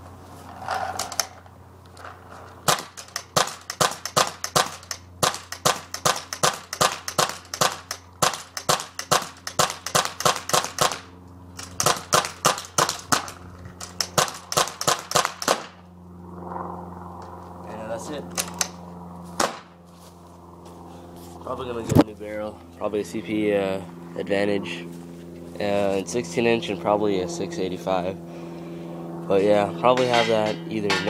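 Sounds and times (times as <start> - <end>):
paintball marker firing: 2.6 - 15.8, 19.4 - 19.7.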